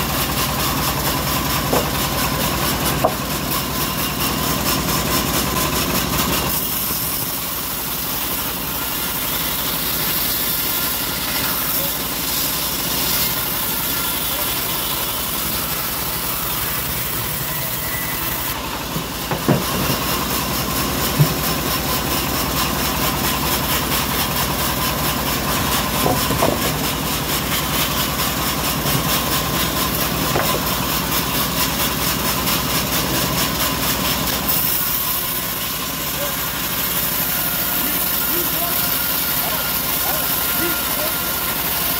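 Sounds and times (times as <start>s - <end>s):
bandsaw mill cutting log: 0.0s - 41.9s
short knocks: 1.7s - 2.1s.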